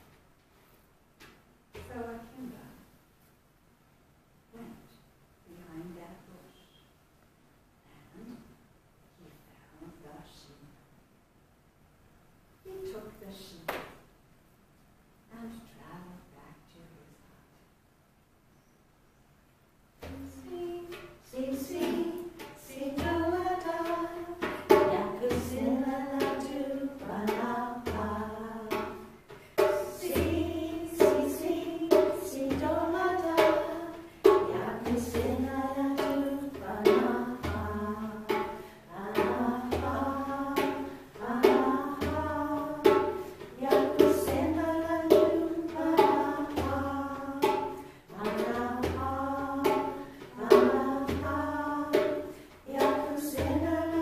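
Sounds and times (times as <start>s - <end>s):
hand drum beat: 20.0s - 54.0s
voices singing: 20.0s - 54.0s.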